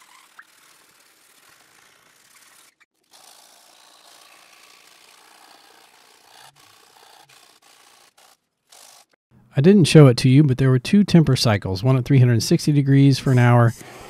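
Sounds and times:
abrasive paper rubbing blade: 0:00.0 - 0:09.2, 0:13.2 - 0:14.0
file scraping steel blade: 0:00.0 - 0:09.2.

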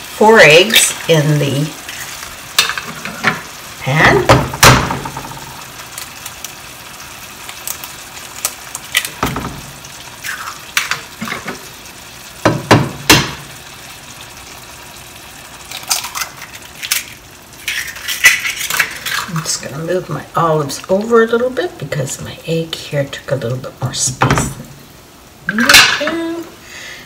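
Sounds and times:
sauce simmering and sizzling: 0:00.0 - 0:27.0
eggs being cracked: 0:15.6 - 0:19.4.

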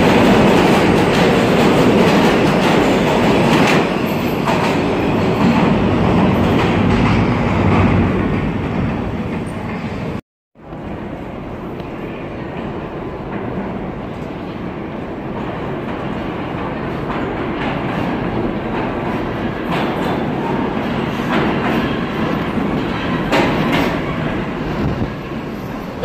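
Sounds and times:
subway train rumble: 0:00.0 - 0:26.0
wheels clacking over rail joints: 0:15.3 - 0:26.0.

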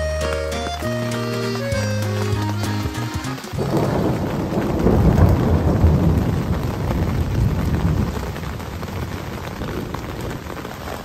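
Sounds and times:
rain falling on a tent: 0:00.0 - 0:11.0
rolling thunder: 0:03.6 - 0:10.8.

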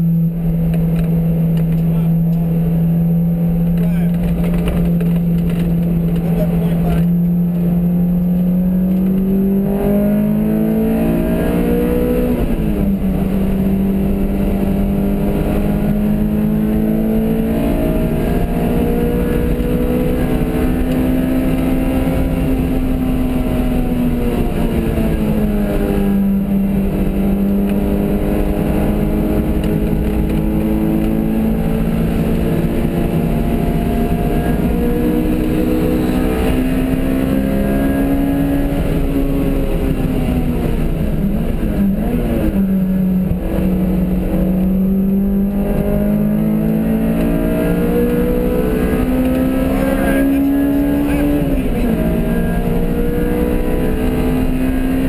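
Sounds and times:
car engine revving: 0:00.0 - 0:55.0
wind and road noise: 0:00.0 - 0:55.0.

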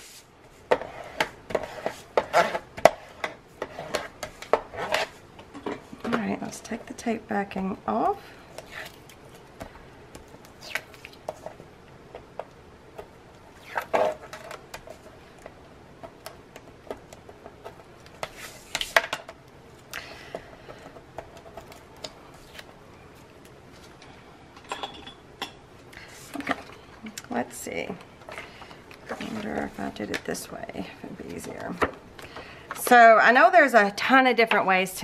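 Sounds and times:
tape backing peeling: 0:10.4 - 0:11.2, 0:13.5 - 0:14.6.

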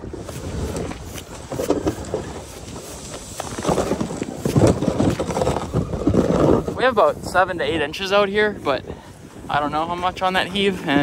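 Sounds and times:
footsteps crunching on snow: 0:00.0 - 0:07.2
sled dragging on ice: 0:00.0 - 0:11.0.

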